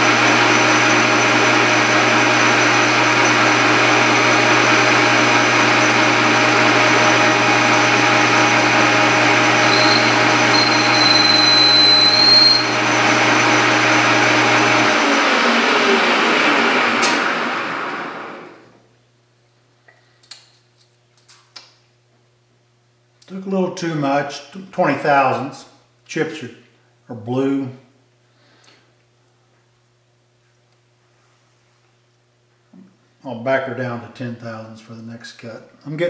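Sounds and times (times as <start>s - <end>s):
high whine of cutting tool: 0.0s - 18.6s
metal lathe motor hum: 0.0s - 18.7s
spindle winding down: 0.0s - 18.8s.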